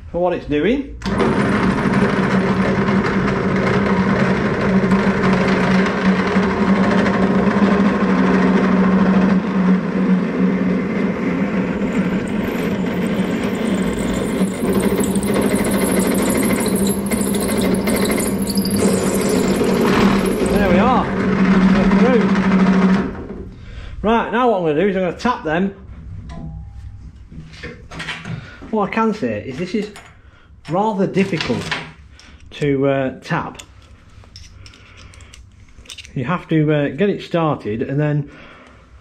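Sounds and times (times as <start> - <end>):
pillar drill humming: 1.0 - 23.3
drill bit drilling metal: 11.4 - 22.7.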